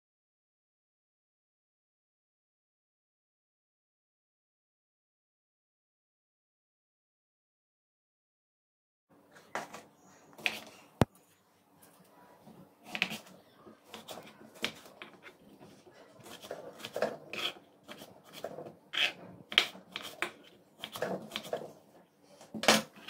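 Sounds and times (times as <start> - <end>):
knife slicing on cutting board: 16.2 - 21.6.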